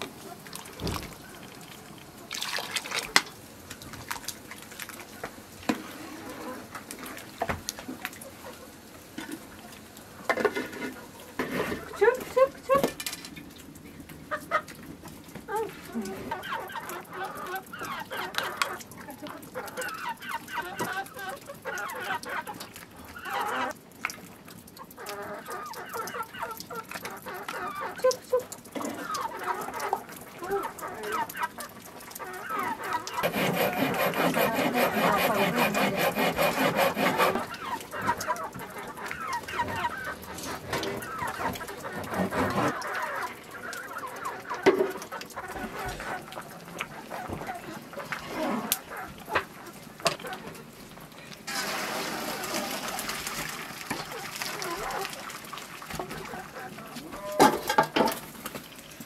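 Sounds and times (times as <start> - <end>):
chickens clucking: 4.0 - 59.0.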